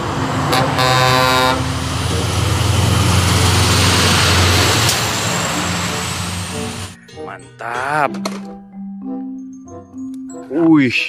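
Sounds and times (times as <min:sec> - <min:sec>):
truck engine rumbling: 0:00.0 - 0:08.6
truck air horn blast: 0:00.4 - 0:02.4.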